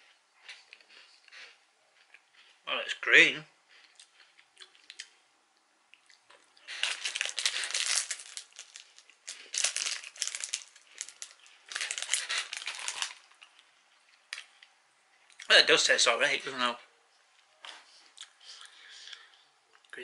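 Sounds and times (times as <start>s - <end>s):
plastic wrapper crinkling: 6.6s - 13.7s.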